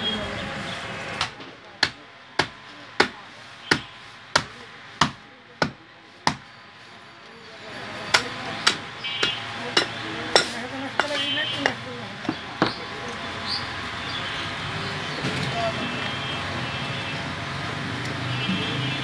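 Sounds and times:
cleaver chopping on wooden block: 0:01.2 - 0:06.5.

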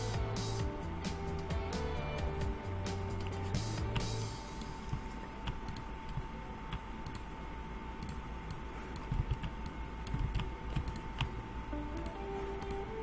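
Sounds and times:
faint steady hum: 0:00.0 - 0:13.0
computer keyboard clicks: 0:08.0 - 0:11.3
mouse clicks: 0:08.0 - 0:11.3.

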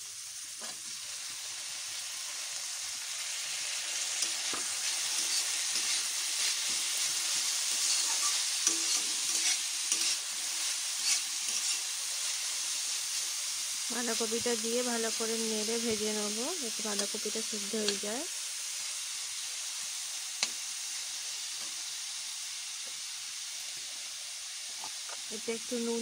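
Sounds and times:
cabbage sizzling in a pan: 0:00.0 - 0:26.0
metal spatula scraping a pan: 0:04.1 - 0:12.6.

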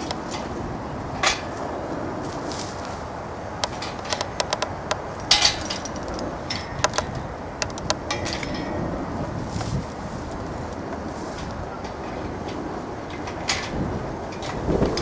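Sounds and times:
metal clamp clinking: 0:03.6 - 0:08.8.

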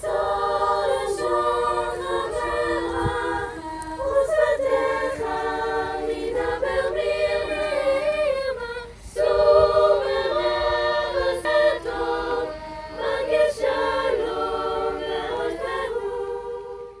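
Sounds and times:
choir singing a cappella: 0:00.0 - 0:17.0.

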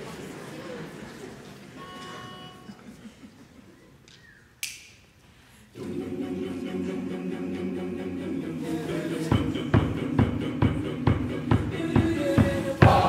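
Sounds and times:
low background noise: 0:00.0 - 0:13.0
choir singing a cappella: 0:05.7 - 0:13.0.

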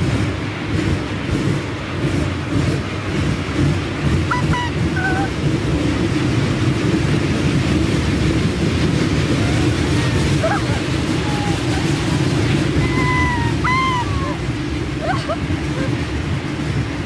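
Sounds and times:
ride train rumbling: 0:00.0 - 0:17.0.

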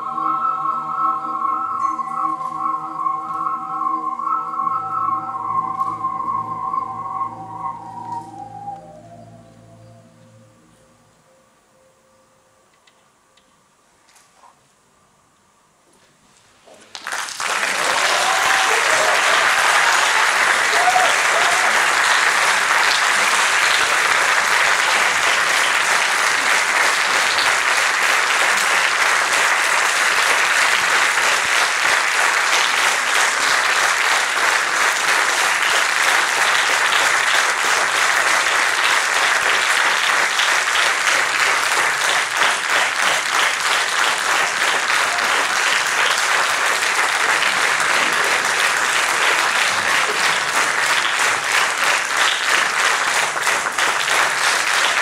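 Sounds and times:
audience applauding: 0:16.8 - 0:55.0.

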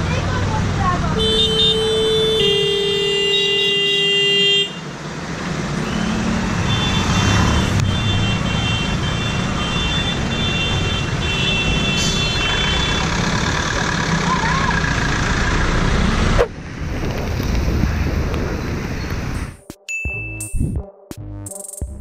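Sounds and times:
idling engines and traffic: 0:00.0 - 0:19.6
long car horn blast: 0:01.2 - 0:04.8.

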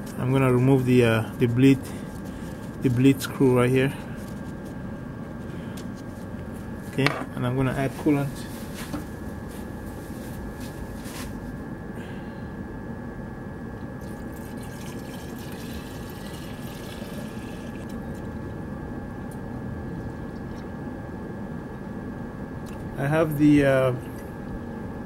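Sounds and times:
steady hum with high whine: 0:00.0 - 0:25.0
liquid pouring from a jug: 0:14.0 - 0:18.4.

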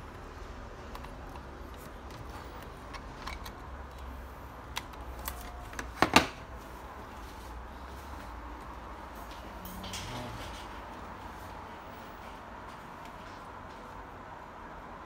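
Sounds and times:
handling clicks and rustles: 0:00.0 - 0:07.4.

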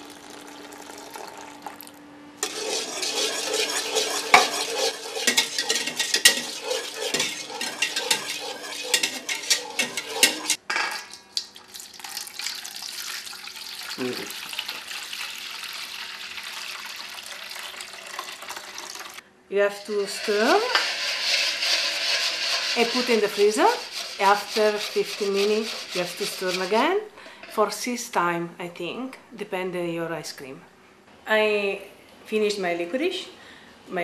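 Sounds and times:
whisk scraping metal pot: 0:02.4 - 0:10.6, 0:19.8 - 0:27.0.

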